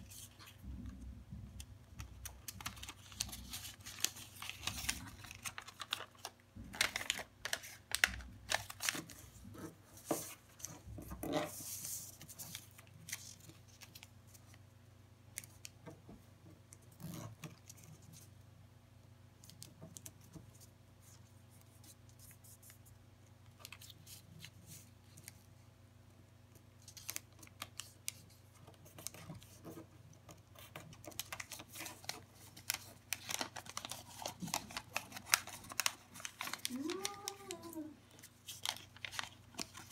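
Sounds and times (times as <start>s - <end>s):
paper rustling and crackling: 2.0s - 14.5s, 26.8s - 39.9s.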